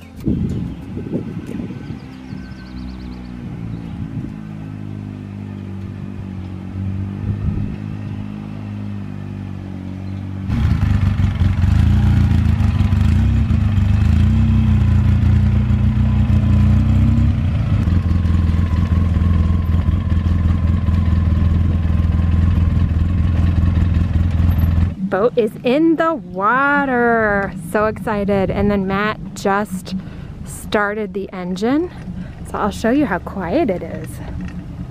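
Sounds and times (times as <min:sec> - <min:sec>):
vehicle engine running: 0:00.0 - 0:34.9.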